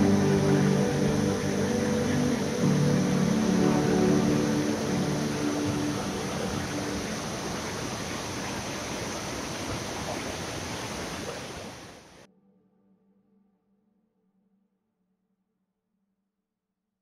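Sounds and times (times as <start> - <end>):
waterfall rushing: 0.0 - 12.2.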